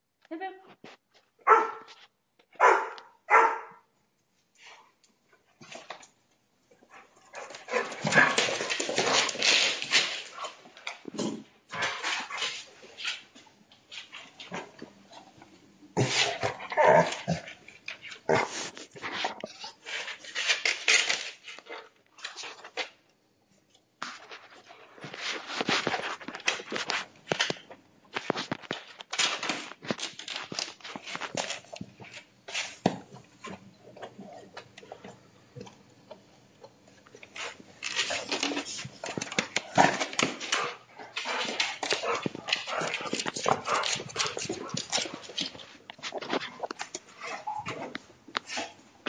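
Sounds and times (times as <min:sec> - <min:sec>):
dog barking: 0:01.4 - 0:01.9, 0:02.6 - 0:03.8.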